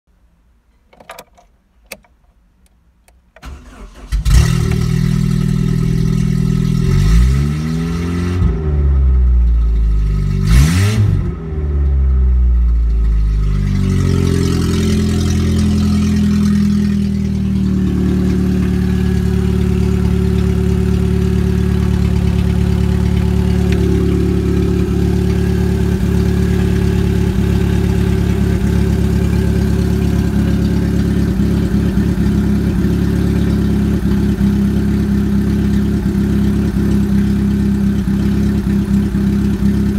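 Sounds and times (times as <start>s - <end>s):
car engine idling: 3.4s - 6.9s, 12.0s - 39.9s
car engine starting and revving: 3.4s - 39.9s.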